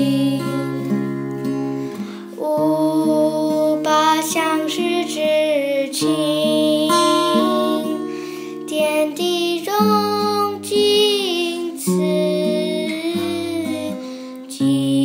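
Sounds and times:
women singing with vibrato: 0.0s - 1.0s, 8.7s - 15.0s
acoustic guitar: 0.0s - 15.0s.

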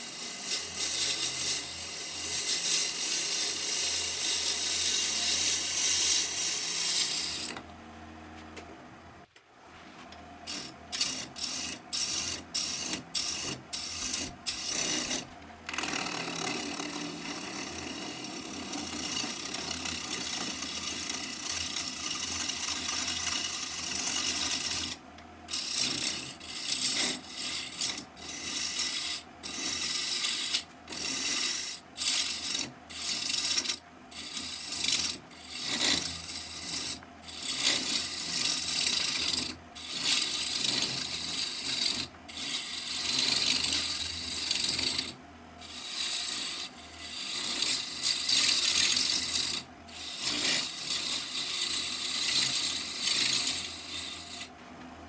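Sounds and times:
lathe tool cutting wood: 0.0s - 7.6s, 10.5s - 54.5s.

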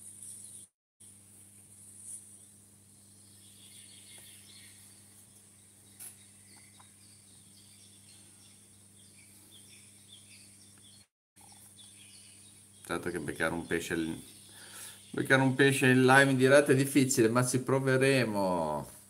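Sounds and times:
distant bird chirps: 2.2s - 17.1s.

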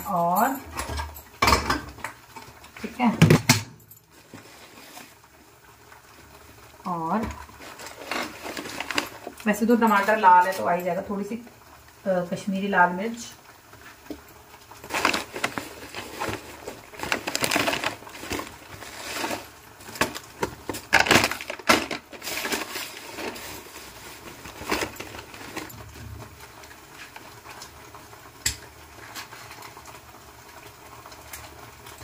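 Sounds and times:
utensil scraping a pan: 7.3s - 9.4s, 14.8s - 20.1s.

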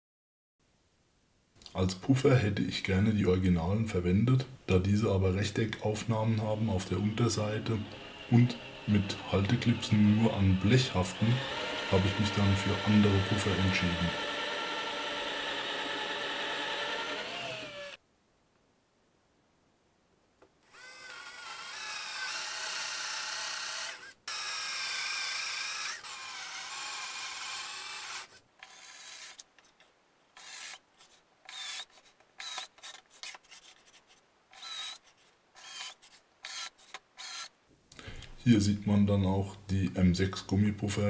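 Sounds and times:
cordless drill boring into wood: 6.0s - 18.0s, 20.6s - 29.5s, 30.4s - 30.8s, 31.5s - 33.0s, 34.6s - 35.0s, 35.6s - 37.5s.

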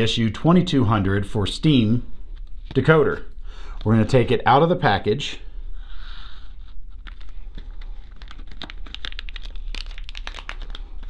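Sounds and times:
packaging crinkling: 6.9s - 11.0s.

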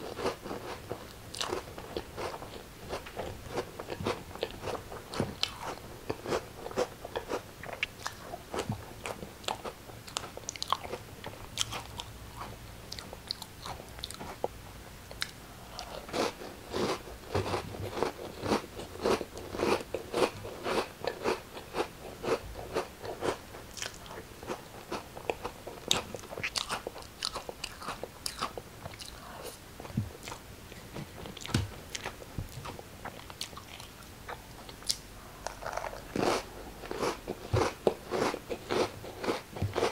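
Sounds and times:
crackers being bitten and chewed: 32.7s - 39.9s.

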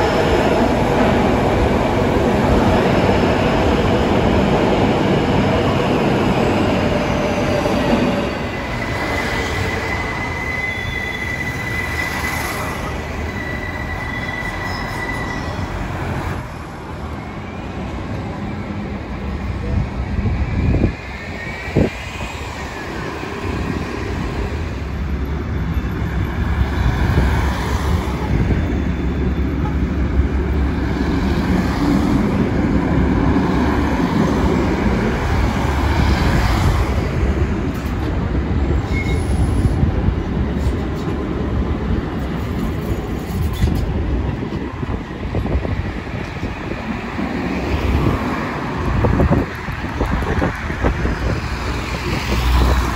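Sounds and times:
tram wheels rumbling on rails: 0.0s - 52.9s
road traffic passing: 39.4s - 52.9s.

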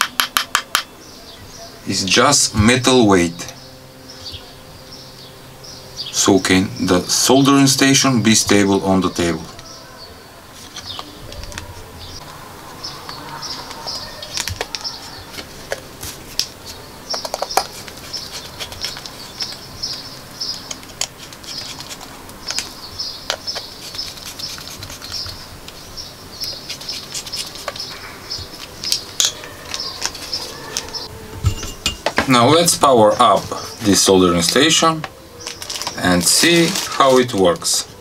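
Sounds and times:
screwdriver clicking and tapping: 0.0s - 0.9s
high twittering chirp: 0.7s - 38.0s.

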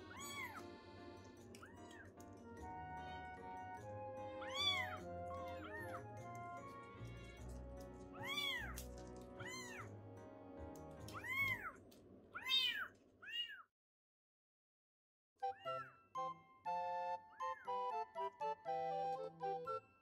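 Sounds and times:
kittens meowing: 0.0s - 0.6s, 4.4s - 6.0s, 8.2s - 8.8s, 9.4s - 9.9s, 11.0s - 11.8s, 12.4s - 13.6s
soft background music: 0.0s - 12.0s, 15.4s - 20.0s.

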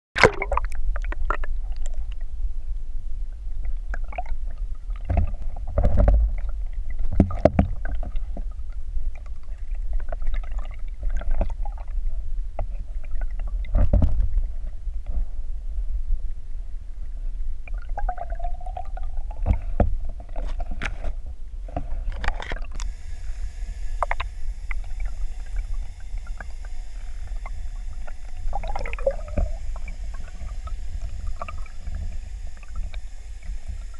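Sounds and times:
faint high hum: 0.2s - 33.9s
underwater water rumble: 0.2s - 33.9s.

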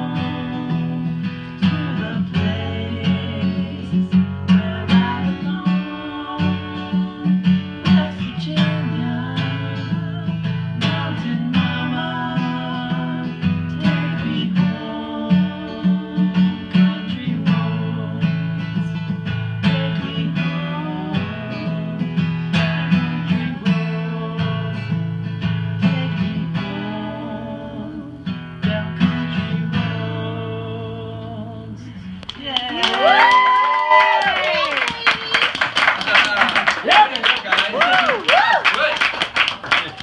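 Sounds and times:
acoustic guitar strumming chords: 0.0s - 32.2s.

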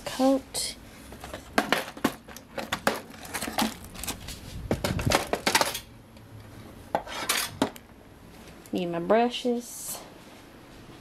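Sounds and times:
plastic bags crinkling: 1.1s - 5.8s
plastic box contents rattling: 1.1s - 5.8s.

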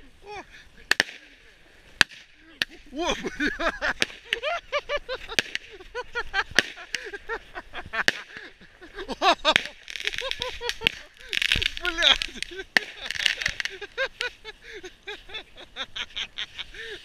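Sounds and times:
firework bangs and crackles: 0.8s - 14.4s
firework squeals: 9.5s - 14.4s.

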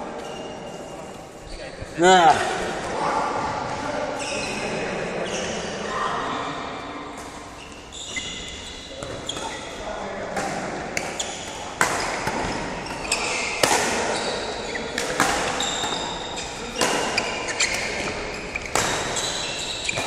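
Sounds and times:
shoes squeaking on court: 0.1s - 2.0s, 3.4s - 6.1s, 7.1s - 9.9s, 11.0s - 20.0s
racket striking shuttlecock: 10.4s - 14.2s, 14.9s - 19.3s.

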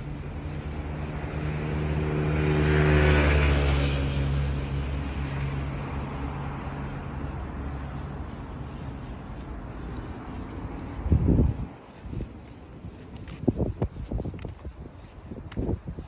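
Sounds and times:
vehicle driving past: 0.0s - 11.8s.

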